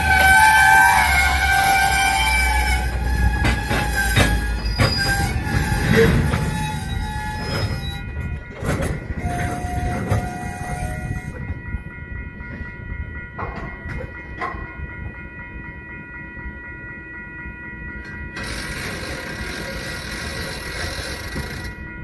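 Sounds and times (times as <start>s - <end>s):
wheel squeal: 0.0s - 11.2s, 18.4s - 21.8s
freight train rumbling: 0.0s - 22.0s.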